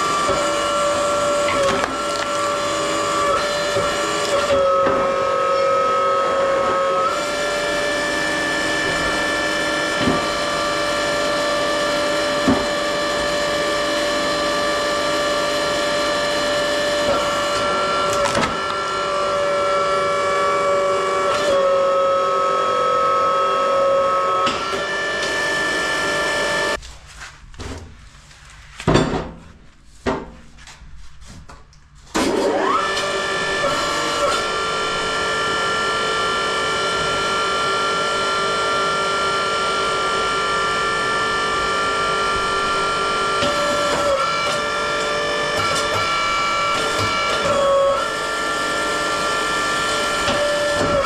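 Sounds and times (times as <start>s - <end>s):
log splitter motor whining: 0.0s - 26.8s, 32.2s - 51.0s.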